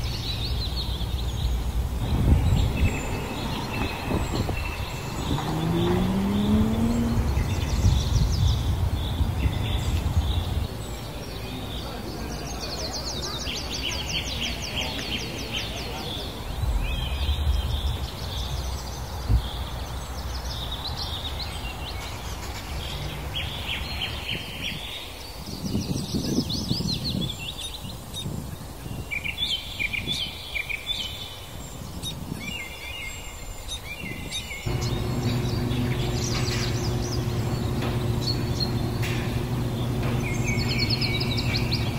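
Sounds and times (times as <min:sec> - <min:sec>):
outdoor background noise: 0:00.0 - 0:41.9
small birds chirping: 0:00.0 - 0:41.9
steady low hum: 0:34.7 - 0:41.9.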